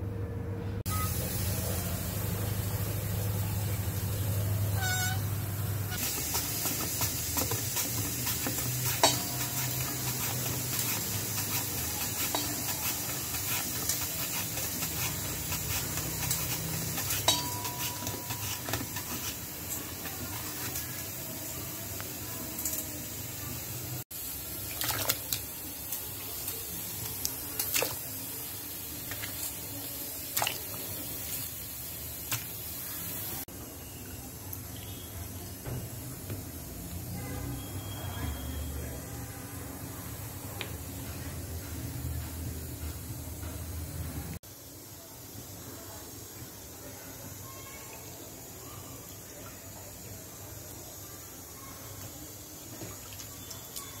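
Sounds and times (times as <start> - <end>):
potatoes scraping on grater: 6.0 - 19.5.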